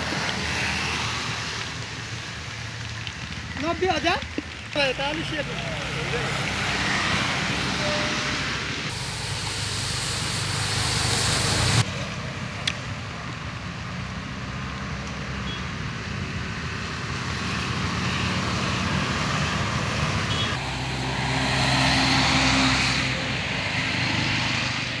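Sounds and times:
tyres hissing on wet road: 0.0s - 25.0s
motorcycle engines passing: 4.1s - 12.6s, 17.1s - 25.0s.

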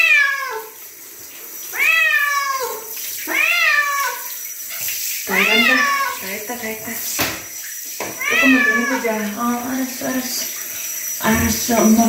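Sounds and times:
cat meowing: 0.0s - 0.8s, 1.7s - 4.3s, 5.3s - 6.2s, 8.1s - 9.2s
water running: 0.0s - 12.0s.

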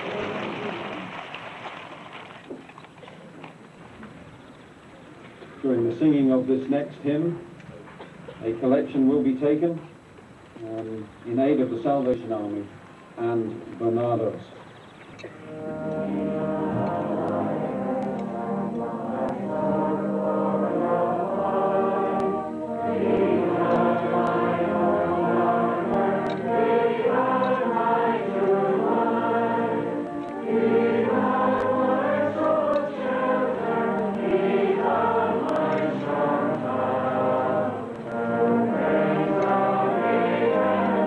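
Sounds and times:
congregation singing a hymn: 0.0s - 1.2s, 15.4s - 41.0s
brass band accompaniment: 15.3s - 41.0s.

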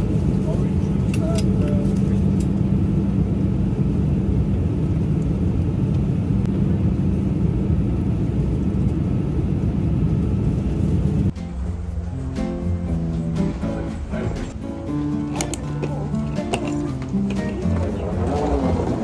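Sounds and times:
airliner cabin drone: 0.0s - 19.0s
acoustic guitar music: 11.3s - 19.0s.

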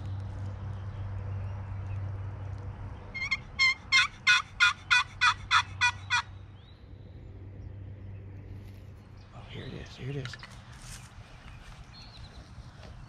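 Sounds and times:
turkey yelps: 3.2s - 6.3s.

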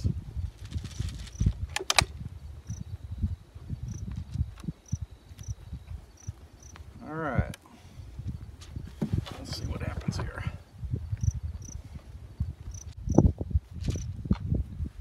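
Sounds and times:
crickets chirping: 0.0s - 14.2s
sharp clicks: 1.3s - 2.8s.

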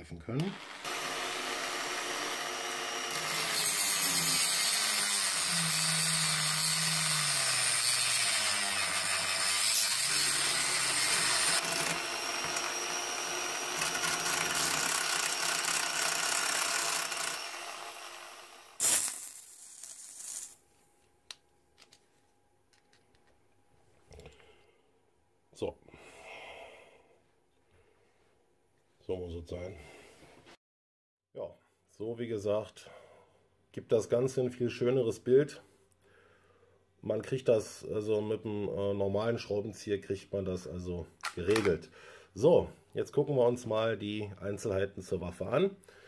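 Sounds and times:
rotary tool grinding metal: 0.4s - 20.6s.

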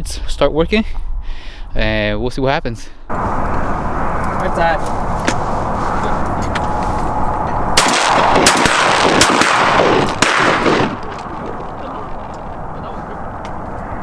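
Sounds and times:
wind on microphone: 3.1s - 14.0s
distant shotgun shots: 7.8s - 12.3s.

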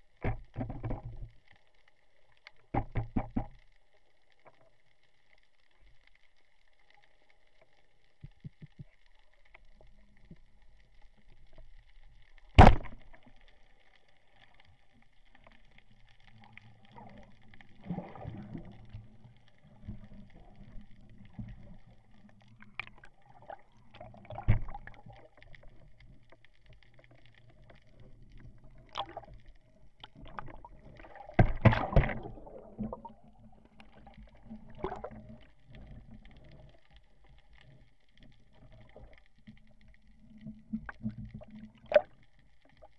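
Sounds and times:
faint steady hiss: 0.0s - 42.9s
bubbling and splashing: 12.5s - 13.4s, 15.5s - 36.6s, 40.1s - 42.9s
speargun firing underwater: 12.6s - 13.1s.

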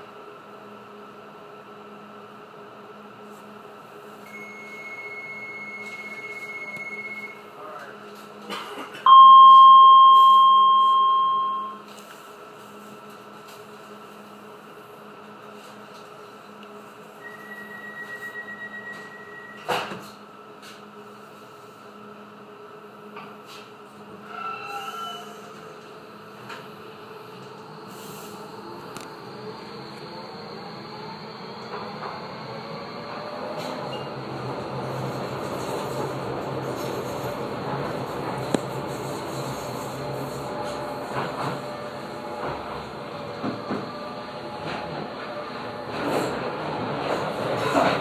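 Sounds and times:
high beep tone: 4.3s - 7.4s, 9.1s - 11.8s
short high tone: 9.1s - 11.8s
two-note electronic chime: 9.1s - 11.8s.

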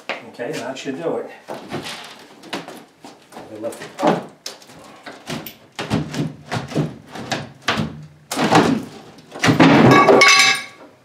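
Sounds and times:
wooden cabinet knocking and scraping: 5.2s - 10.6s.

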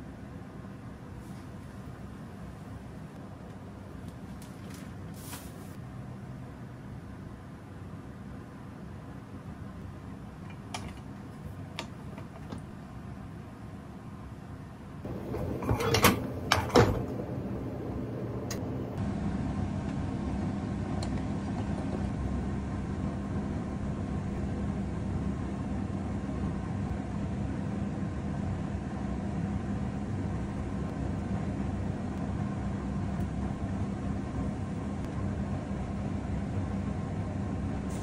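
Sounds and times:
low hum with hiss: 0.0s - 38.0s.

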